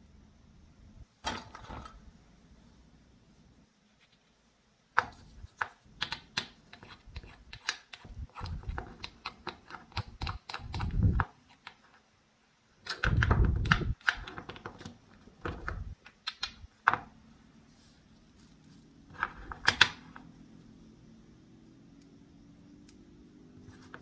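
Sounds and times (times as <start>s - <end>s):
wooden pieces clacking on board: 5.0s - 11.8s, 12.9s - 17.1s, 19.1s - 20.2s.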